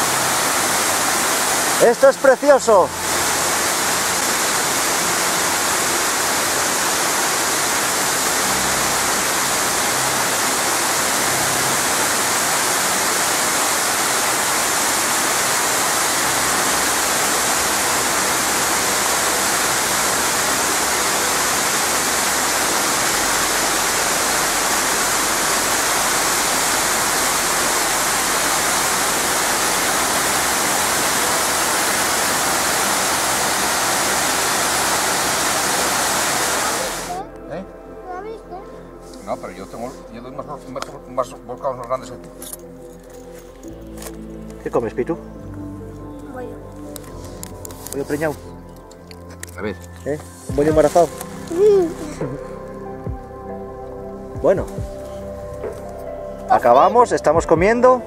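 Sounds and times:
waterfall rushing: 0:00.0 - 0:37.2, 0:50.4 - 0:53.2.

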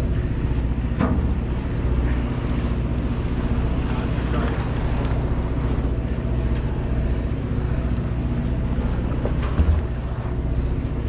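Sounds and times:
boat engine rumbling: 0:00.0 - 0:11.0.

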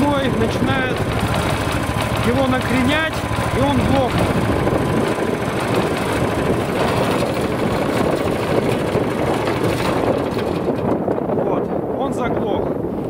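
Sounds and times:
single-cylinder engine running: 0:00.0 - 0:11.9.

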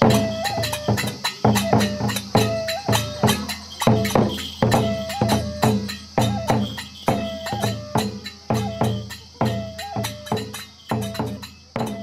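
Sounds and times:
barrel drum beaten with sticks: 0:00.0 - 0:12.0
flute phrase: 0:00.0 - 0:12.0
hand cymbal clashes: 0:00.0 - 0:12.0.

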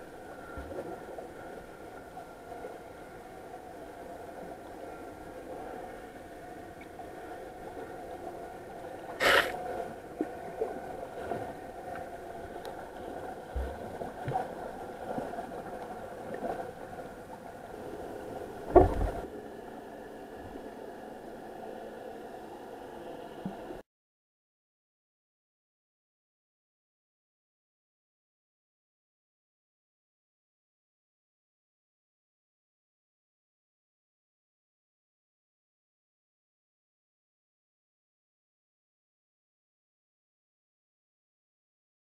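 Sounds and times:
steady underwater hum: 0:00.0 - 0:23.8.

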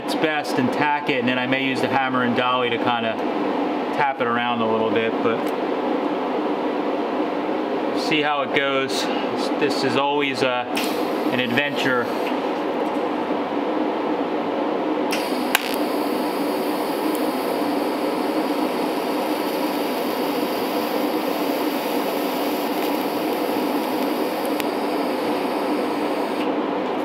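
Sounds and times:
fan humming: 0:05.5 - 0:27.0
welding arc hissing: 0:15.1 - 0:26.5
click: 0:22.8 - 0:24.7.

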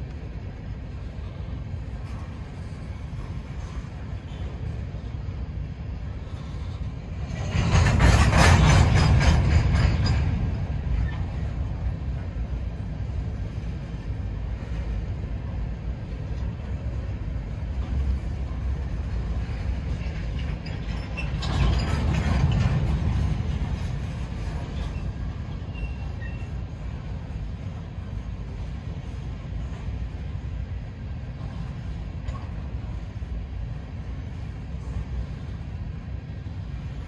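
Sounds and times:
train wheels rumbling on rail: 0:00.0 - 0:37.0
rapid wheel clatter: 0:07.2 - 0:11.0.

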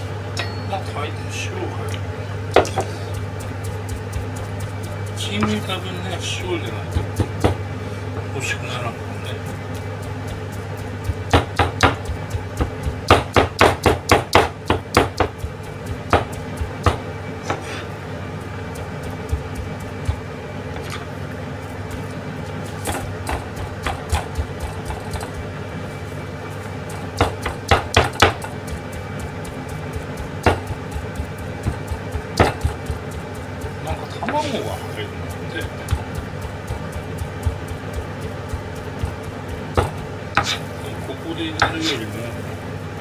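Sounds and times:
steady low hum: 0:00.0 - 0:43.0
knife chopping on plastic board: 0:02.5 - 0:05.6, 0:06.9 - 0:07.6, 0:09.3 - 0:17.7, 0:18.7 - 0:21.0, 0:22.8 - 0:25.4, 0:26.9 - 0:34.5, 0:35.3 - 0:40.7.

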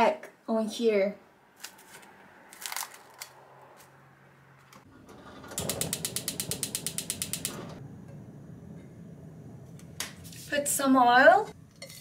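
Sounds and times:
cling film crinkling: 0:01.6 - 0:03.3
gas burner rushing: 0:04.8 - 0:11.5
stove igniter clicking: 0:05.7 - 0:07.8.

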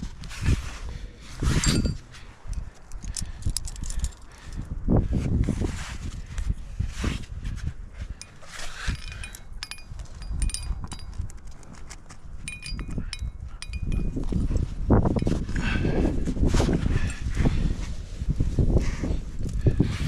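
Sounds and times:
metal climbing gear clinking: 0:01.4 - 0:04.8, 0:08.0 - 0:16.0, 0:16.8 - 0:17.5.

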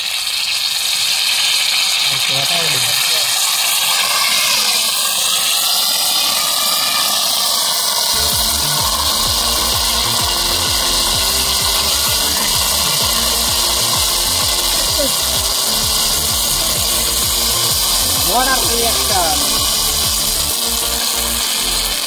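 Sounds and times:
hot oil sizzling in a wok: 0:00.0 - 0:22.0
low rhythmic thudding pulse: 0:08.2 - 0:21.4.

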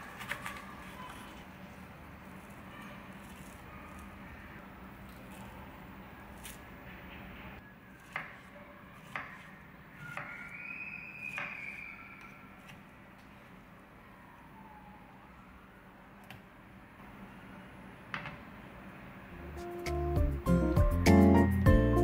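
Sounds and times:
knife slicing fruit: 0:02.4 - 0:04.2, 0:06.3 - 0:06.7.

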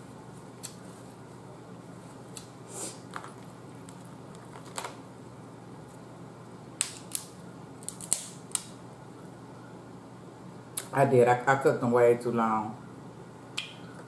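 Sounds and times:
crab shells cracking: 0:06.8 - 0:08.8.

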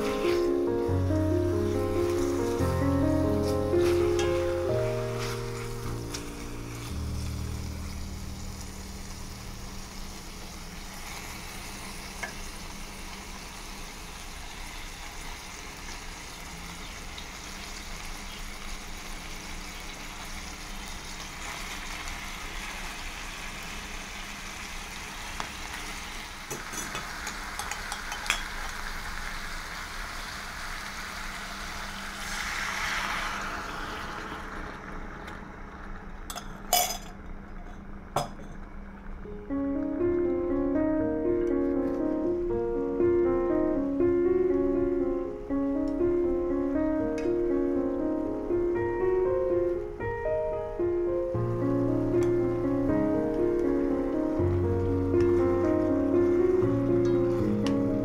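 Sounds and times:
meat sizzling in a frying pan: 0:00.0 - 0:35.6.

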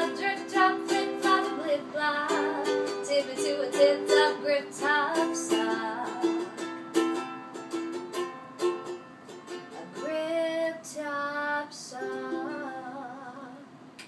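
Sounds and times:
woman singing: 0:00.0 - 0:06.6, 0:09.7 - 0:13.7
ukulele strumming: 0:00.0 - 0:10.8, 0:11.9 - 0:13.3.

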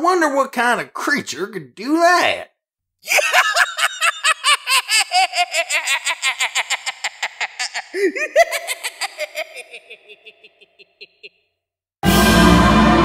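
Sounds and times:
rapid cackling laugh: 0:03.1 - 0:11.5.

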